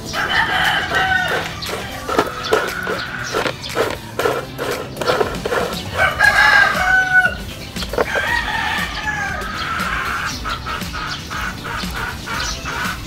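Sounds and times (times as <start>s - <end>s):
rooster crowing: 0.1s - 4.4s, 5.7s - 10.1s.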